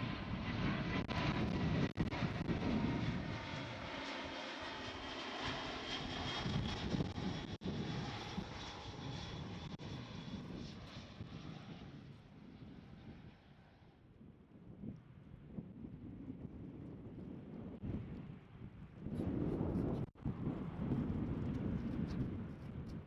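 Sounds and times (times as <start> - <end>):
jet engines rumbling and whining: 0.0 - 14.1.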